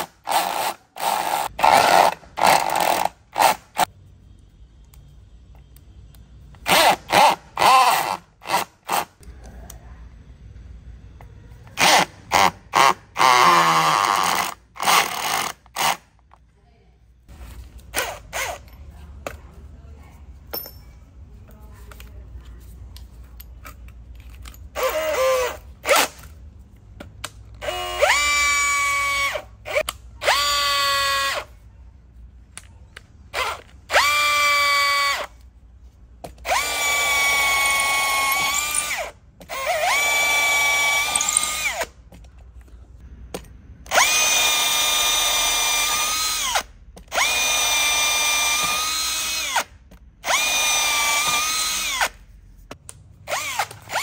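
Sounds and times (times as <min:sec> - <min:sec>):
cordless drill driving screws: 0:27.6 - 0:31.5, 0:33.4 - 0:35.3, 0:36.4 - 0:41.9, 0:43.9 - 0:52.2, 0:53.3 - 0:54.0
drill whining free: 0:27.6 - 0:31.5, 0:33.4 - 0:35.3, 0:36.4 - 0:41.9, 0:43.9 - 0:52.2, 0:53.3 - 0:54.0.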